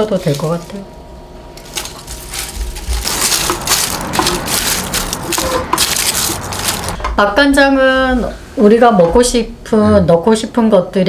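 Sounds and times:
dried vegetable skins crackling: 0.0s - 7.0s.

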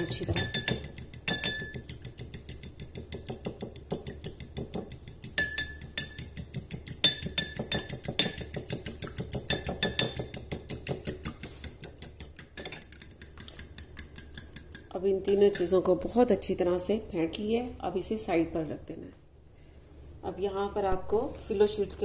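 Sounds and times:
fork clinking against glass bowl: 0.0s - 3.4s, 4.5s - 15.7s.

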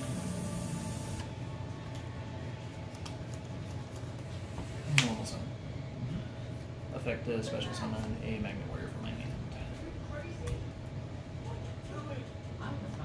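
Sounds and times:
low room hum: 0.0s - 13.0s
cards shuffled: 2.8s - 4.3s.

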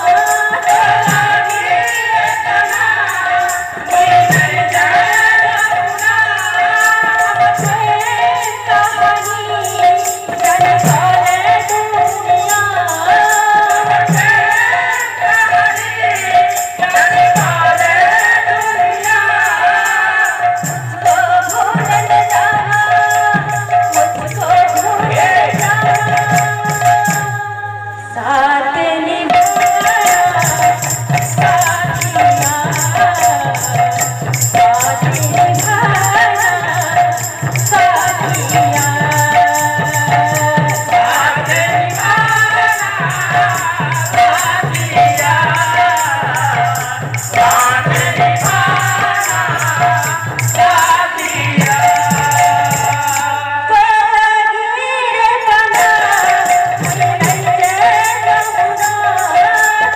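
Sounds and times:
woman singing into microphone: 0.0s - 59.9s
hand cymbals: 29.2s - 53.4s, 55.6s - 59.9s.

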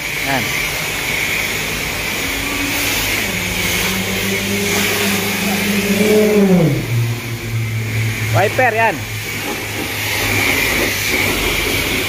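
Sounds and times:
motor hum: 0.0s - 12.0s
water spray hissing on car: 0.0s - 12.0s.

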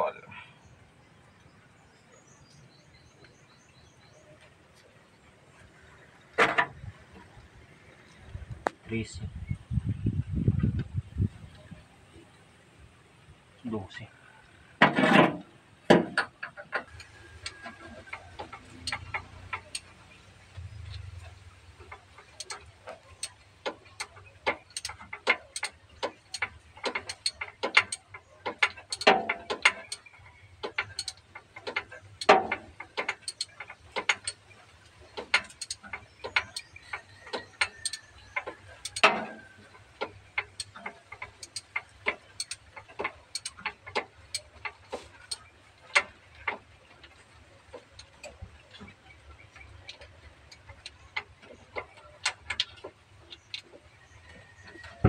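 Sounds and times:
socket ratchet wrench clicking: 35.3s - 36.7s, 42.4s - 42.6s, 43.3s - 43.7s.

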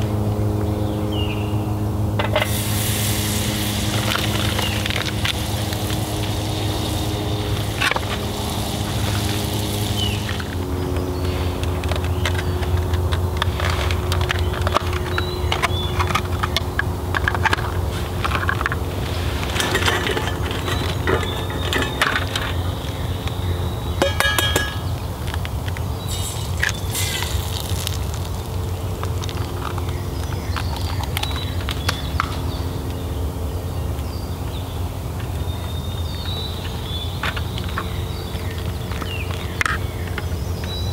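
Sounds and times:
stove burning rumble: 1.8s - 32.2s
cookware clicks and clinks: 24.0s - 24.8s.

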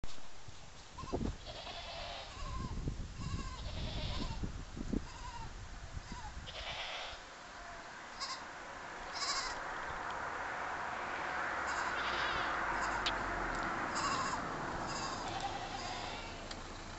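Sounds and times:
goat kid bleating: 1.0s - 4.4s, 5.0s - 7.3s, 8.2s - 8.5s, 9.1s - 9.6s, 11.7s - 13.1s, 13.9s - 16.5s.

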